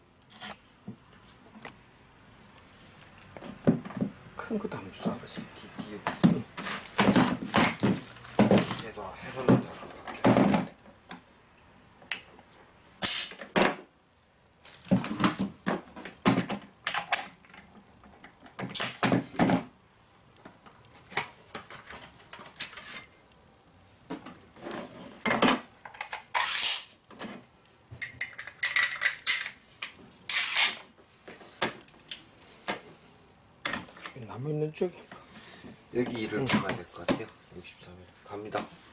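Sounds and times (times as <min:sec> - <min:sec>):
short hissing bursts of air: 0:13.0 - 0:13.4
metal tools clanking on wood: 0:36.0 - 0:37.4.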